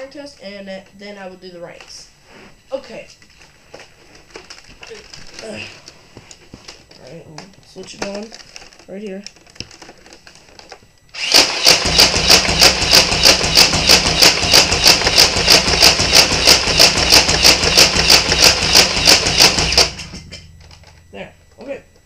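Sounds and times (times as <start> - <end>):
toy blaster motor drone: 11.1 - 20.0
blaster mechanism clacking: 11.2 - 21.0.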